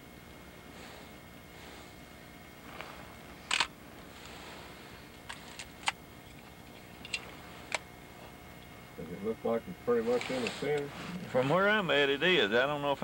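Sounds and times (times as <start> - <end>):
camcorder handling clicks: 5.3 - 6.0.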